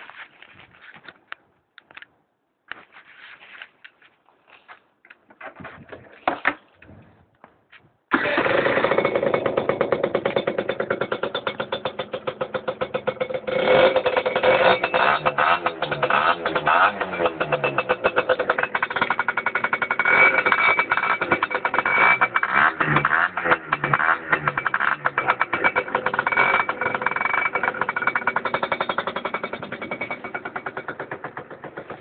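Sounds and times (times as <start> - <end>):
clicks and scuffs: 0.0 - 8.0
scooter engine running: 8.1 - 32.0.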